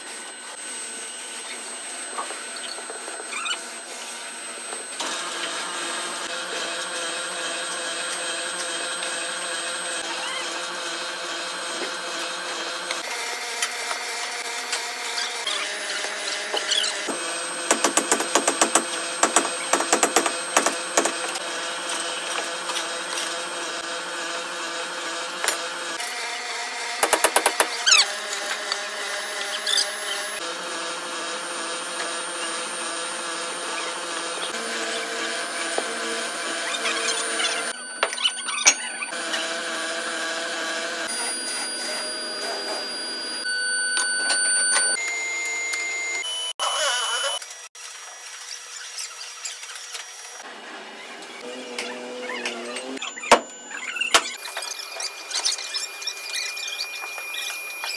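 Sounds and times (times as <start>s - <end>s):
rapid sharp clicks and knocks: 17.7s - 21.2s
machinery whine: 31.3s - 47.6s.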